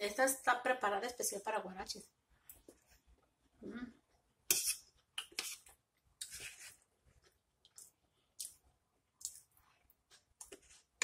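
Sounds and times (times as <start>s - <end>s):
fork on plate: 4.5s - 6.8s
chewing: 9.2s - 11.0s.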